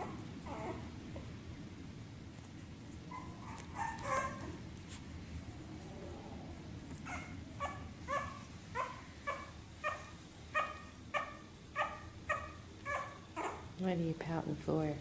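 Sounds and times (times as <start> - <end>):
puppy yipping and whining: 0.0 - 0.9, 3.1 - 4.6, 7.0 - 13.7.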